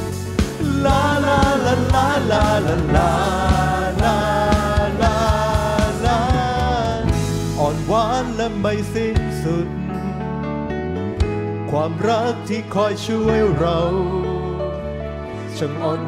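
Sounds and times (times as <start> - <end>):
steady drum beat: 0.0 - 8.4
band accompaniment: 0.0 - 10.0, 11.1 - 12.4
singers holding long notes: 0.6 - 10.1.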